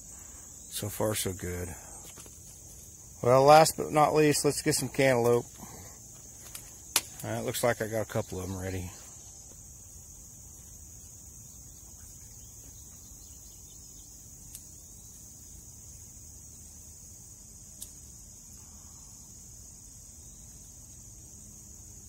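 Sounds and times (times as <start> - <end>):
insects singing chorus: 0.0 - 22.0
faint sharp clicks: 14.5 - 14.7, 17.8 - 18.0.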